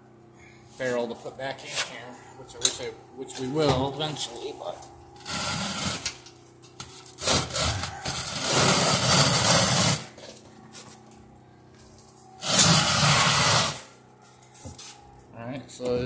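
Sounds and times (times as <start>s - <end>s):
steel barrel scraping on concrete: 5.2s - 6.2s, 6.9s - 10.2s, 12.4s - 13.9s.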